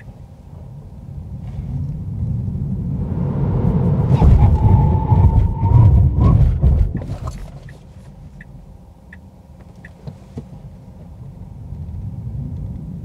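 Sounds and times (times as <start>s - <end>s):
low road and cabin rumble: 0.0s - 13.0s
turn indicator ticking: 6.9s - 10.5s.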